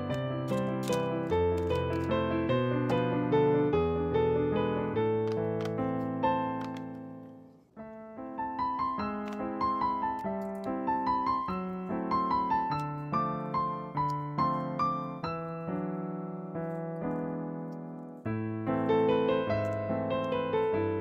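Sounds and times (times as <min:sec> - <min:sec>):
gentle solo piano melody: 0:00.0 - 0:21.0.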